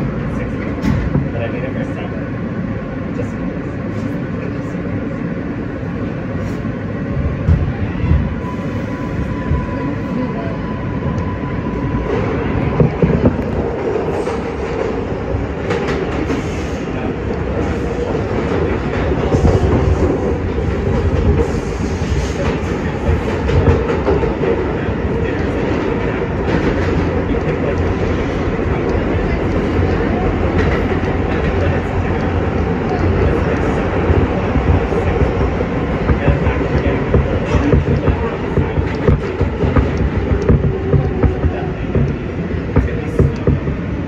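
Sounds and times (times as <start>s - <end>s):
subway wheels and motors rumbling: 0.0s - 44.0s
wheels clicking on rail joints: 25.2s - 43.9s.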